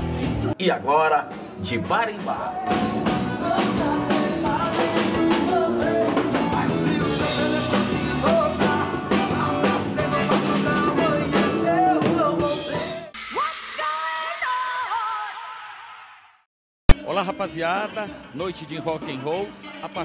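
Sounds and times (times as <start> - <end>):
live rock band: 0.0 - 0.6, 1.2 - 13.3
man singing: 1.6 - 13.1, 17.0 - 20.0.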